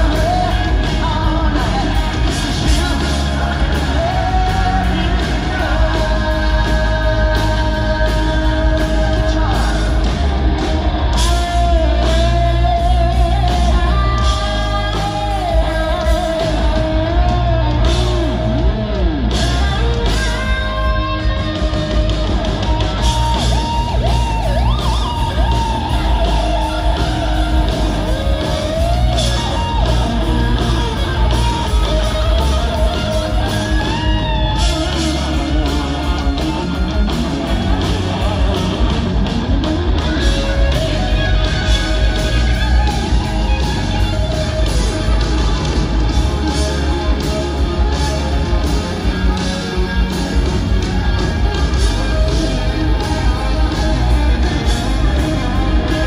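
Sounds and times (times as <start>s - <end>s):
distorted electric guitar lead: 0.0s - 56.0s
live rock band: 0.0s - 56.0s
person singing: 0.0s - 56.0s.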